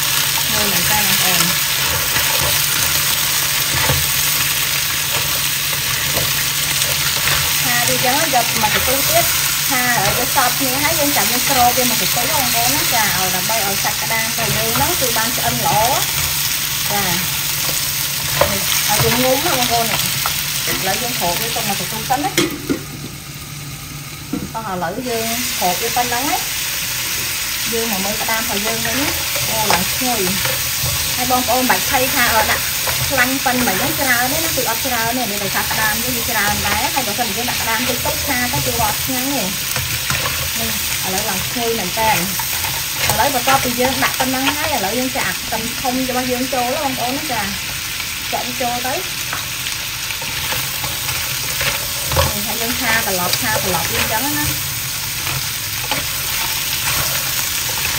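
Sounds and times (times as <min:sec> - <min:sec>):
spatula scraping a wok: 0:00.0 - 0:12.2, 0:28.1 - 0:44.9, 0:50.1 - 0:57.9
crab sizzling in hot oil: 0:00.0 - 0:57.9.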